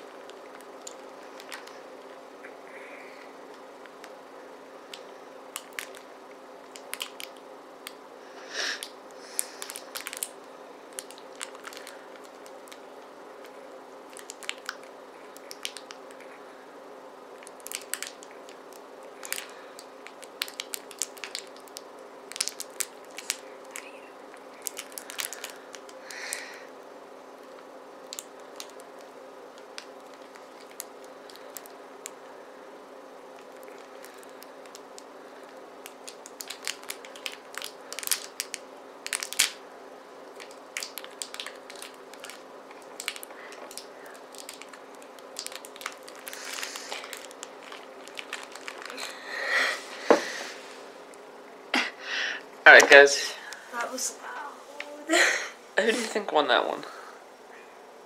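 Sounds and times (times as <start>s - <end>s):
plastic wrapper crinkling: 0.0s - 2.2s, 4.9s - 8.0s, 8.7s - 16.3s, 17.4s - 26.5s, 27.5s - 32.3s, 33.3s - 39.6s, 40.3s - 49.4s.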